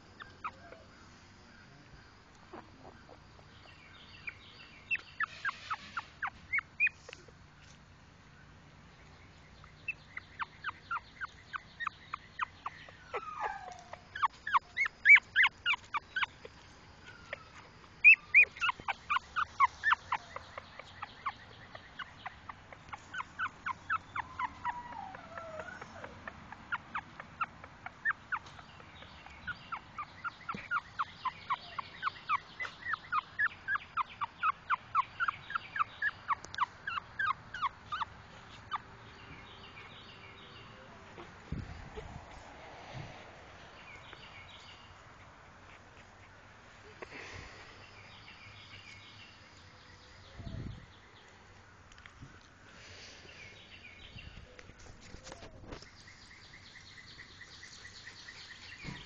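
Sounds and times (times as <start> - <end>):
puppies squeaking: 4.2 - 7.4, 9.9 - 39.8, 58.5 - 59.0
puppies whining: 10.0 - 39.4.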